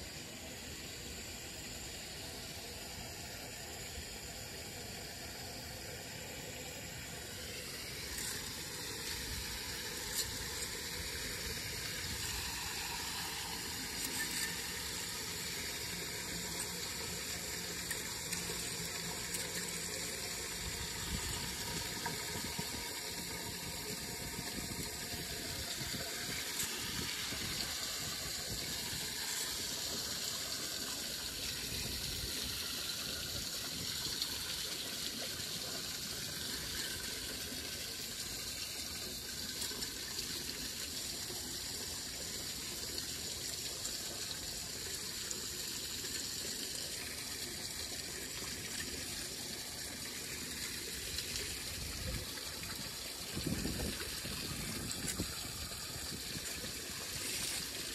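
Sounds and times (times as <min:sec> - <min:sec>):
water gushing down a drain: 0:00.1 - 0:57.9.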